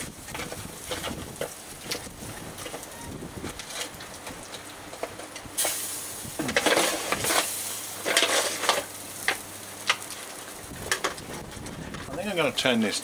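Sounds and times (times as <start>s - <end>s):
vegetables sizzling: 0.0s - 12.9s
utensil scraping foil tray: 6.4s - 8.9s.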